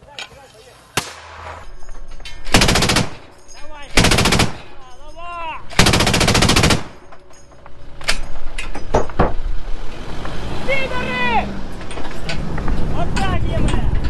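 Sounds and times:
sharp gunshot cracks: 1.0s - 1.7s
machine gun bursts: 2.5s - 4.8s, 5.7s - 7.1s.

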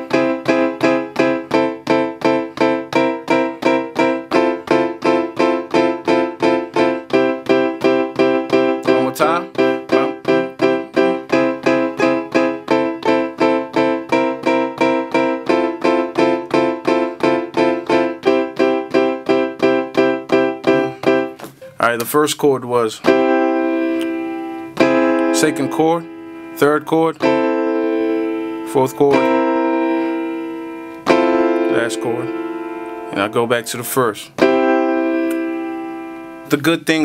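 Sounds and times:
piano chords: 0.0s - 37.0s.

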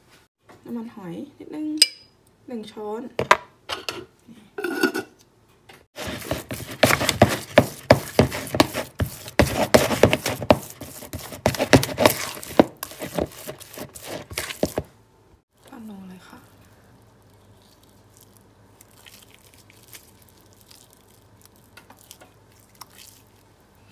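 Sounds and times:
spoon scraping in bowl: 4.6s - 5.2s, 6.0s - 14.9s.

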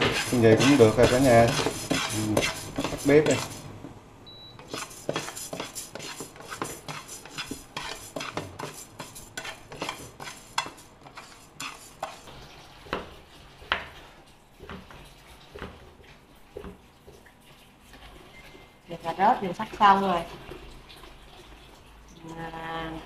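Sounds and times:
knife chopping on plastic board: 0.0s - 3.5s
spatula scraping rice in pan: 0.0s - 3.7s, 4.6s - 12.3s.

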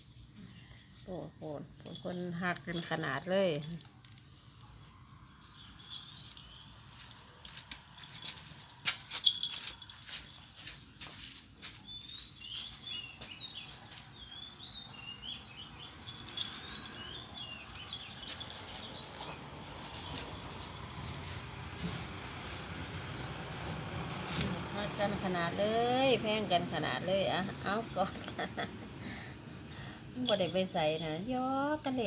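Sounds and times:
cats scuffling on concrete: 5.8s - 25.3s.

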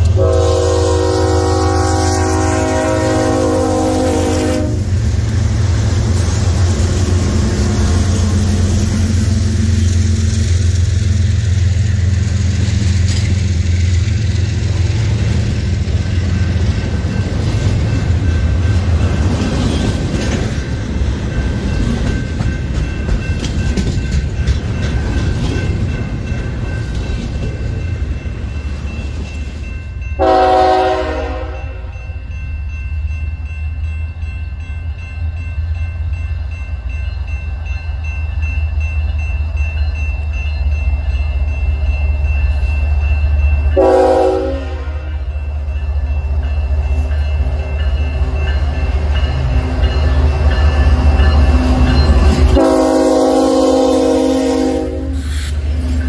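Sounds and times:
train horn: 0.0s - 5.0s, 30.2s - 32.0s, 43.8s - 45.3s, 52.5s - 55.4s
diesel locomotives rumbling: 0.0s - 56.0s
train wheel noise: 0.0s - 56.0s.

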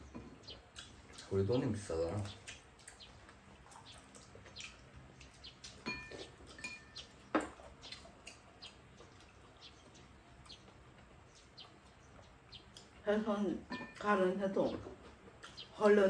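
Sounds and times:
utensils tapping ceramic bowls: 5.8s - 7.0s.

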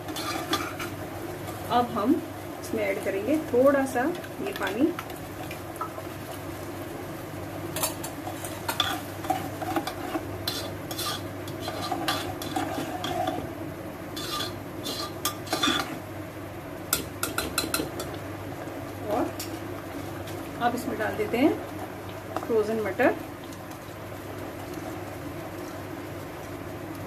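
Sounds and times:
ladle clinking and scraping pan: 0.0s - 0.9s, 7.8s - 13.5s, 14.2s - 16.0s
steady low hum: 0.0s - 27.0s.

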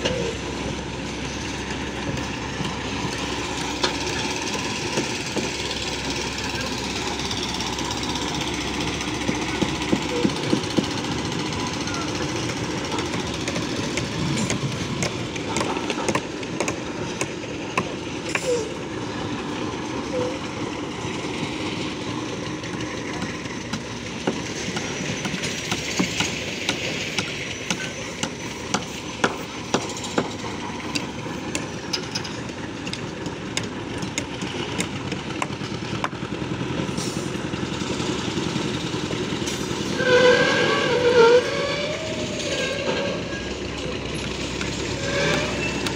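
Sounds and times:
construction machinery droning: 0.0s - 45.9s
sharp knocks and clanks: 9.0s - 11.2s.

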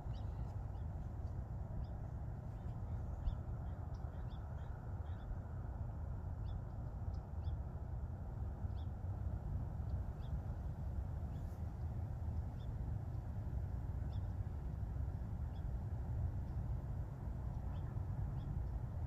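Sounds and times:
faint high-pitched bird calls: 0.0s - 1.0s, 1.8s - 5.4s
steady low rumble: 0.0s - 19.0s.

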